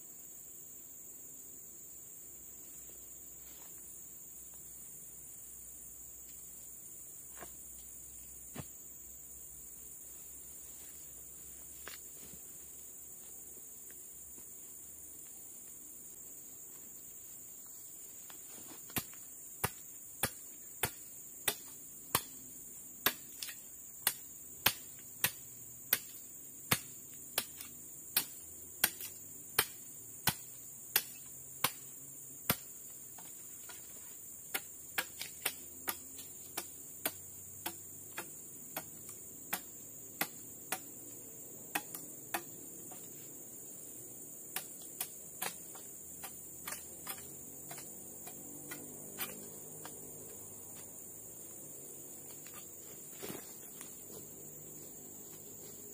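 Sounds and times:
machete striking into soil: 18.7 - 50.9.

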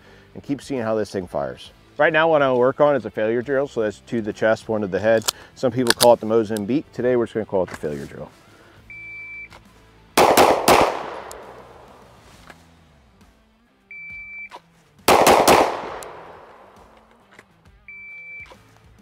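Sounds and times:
pistol shots echoing: 10.2 - 12.1, 15.1 - 17.2
shot timer beeps: 13.9 - 14.6, 17.9 - 18.5.

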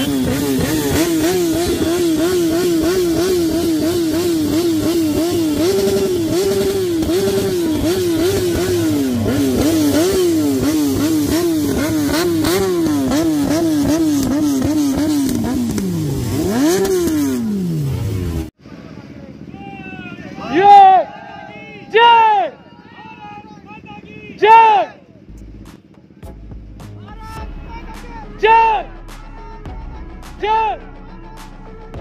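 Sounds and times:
motorcycle engine revving: 0.0 - 19.6.

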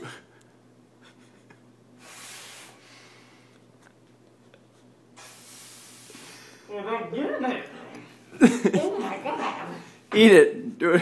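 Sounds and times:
air sucked through a thin tube: 2.0 - 2.9, 5.2 - 6.6.

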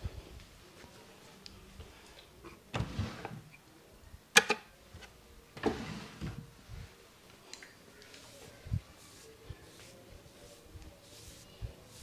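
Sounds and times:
hands rubbing skin and hair: 7.5 - 12.0.

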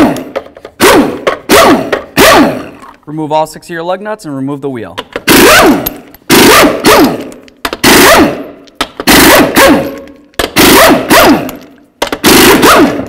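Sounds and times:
impact wrench hammering: 0.0 - 2.8, 5.0 - 13.0
impact wrench spinning down: 5.2 - 13.0.

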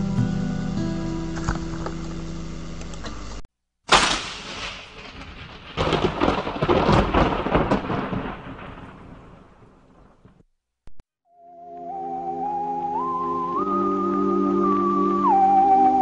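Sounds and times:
music: 0.0 - 2.9, 11.3 - 16.0
thunderclap and rolling rumble: 4.0 - 10.4.

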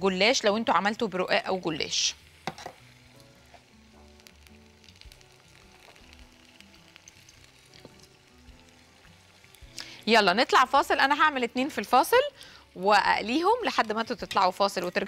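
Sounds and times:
food sizzling in hot oil: 0.0 - 15.0
oil popping: 2.2 - 10.8.

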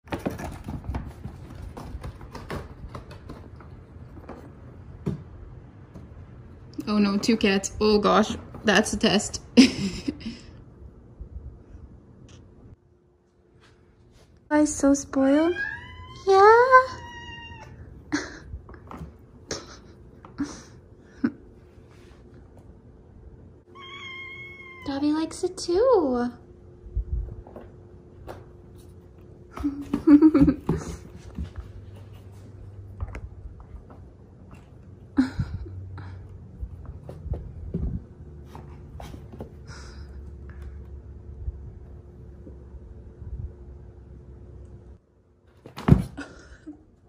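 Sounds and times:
cat thumping on cardboard box: 45.6 - 46.2.

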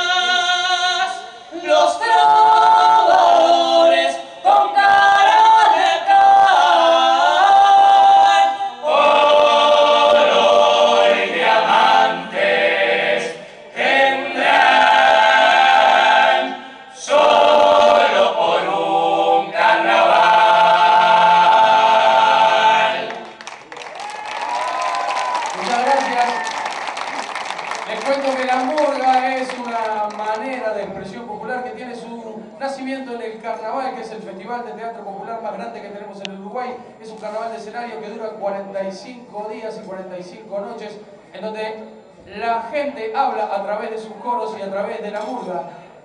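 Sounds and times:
mixed chorus singing a cappella: 0.0 - 23.4.

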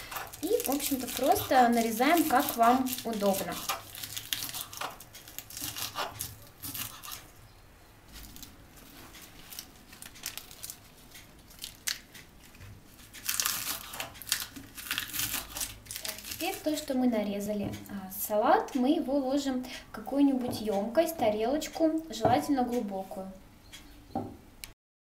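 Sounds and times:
knife chopping lettuce on board: 3.3 - 7.2.

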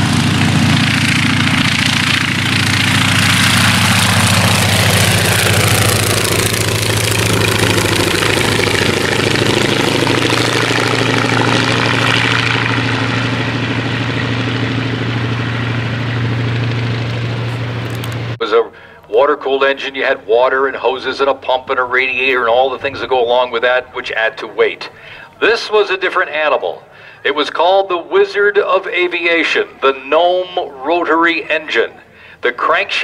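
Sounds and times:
radial aircraft engine at full power: 0.0 - 19.1, 24.9 - 25.4, 26.7 - 27.2.

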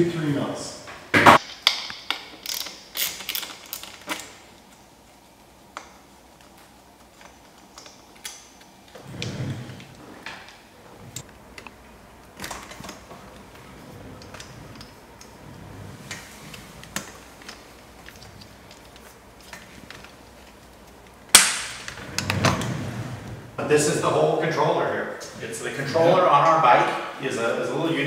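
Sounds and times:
hand ratchet clicking: 1.4 - 4.2.

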